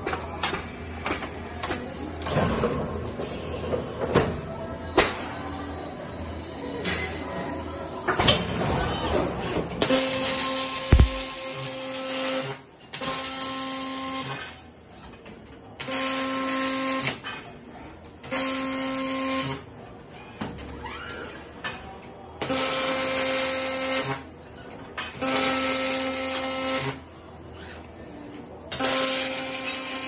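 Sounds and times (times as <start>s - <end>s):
welding arc buzzing hiss: 9.9s - 12.6s.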